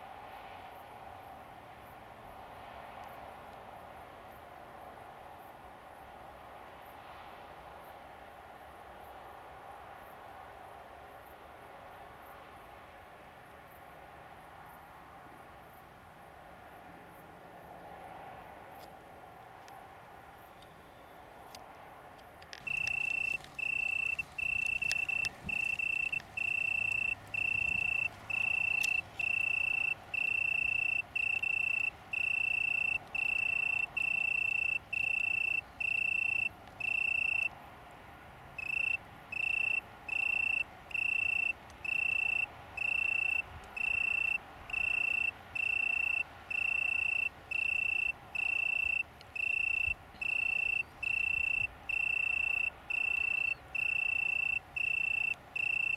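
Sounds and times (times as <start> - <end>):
cricket trilling: 22.5 - 37.5, 38.6 - 55.9.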